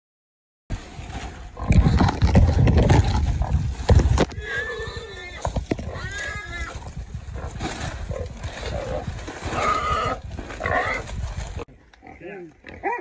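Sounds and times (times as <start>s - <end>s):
rustling through brush: 0.7s - 11.7s
wild hog squealing: 4.4s - 6.8s, 8.7s - 11.1s.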